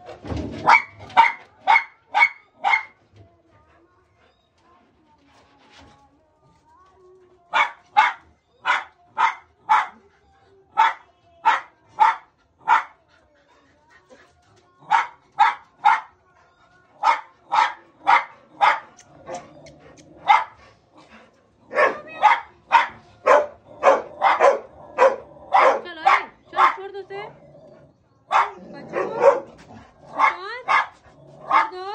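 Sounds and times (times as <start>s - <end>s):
dogs barking: 0.6s - 3.0s, 7.5s - 10.0s, 10.7s - 13.0s, 14.9s - 16.2s, 17.0s - 19.5s, 20.2s - 20.6s, 21.7s - 27.3s, 28.3s - 31.9s.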